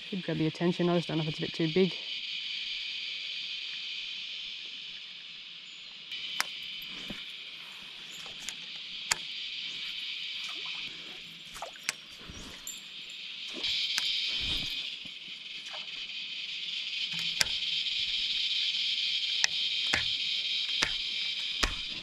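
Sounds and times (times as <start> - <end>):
cicadas singing: 0.0 - 22.0
sharp clicks: 6.2 - 7.2, 8.2 - 10.7, 11.5 - 12.5, 13.5 - 16.0, 17.0 - 18.5, 19.2 - 22.0.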